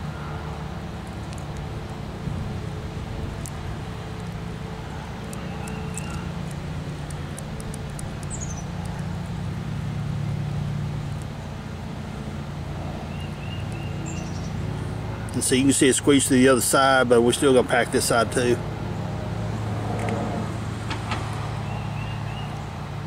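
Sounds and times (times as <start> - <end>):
low engine hum: 0.0 - 23.0
bird chirps: 5.3 - 6.4, 8.2 - 9.0, 13.1 - 14.6, 21.6 - 22.7.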